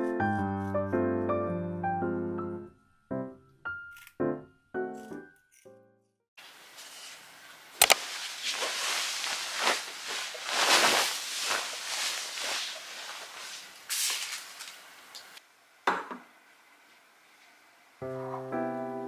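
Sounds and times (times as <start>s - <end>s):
bedding rustling: 6.4s - 15.4s.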